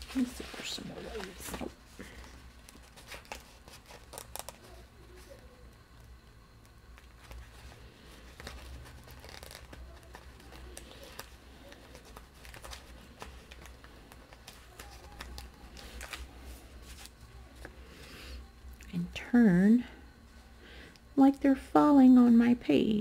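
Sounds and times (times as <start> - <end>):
paper rustling and crinkling: 0.0 - 5.6, 6.9 - 17.7.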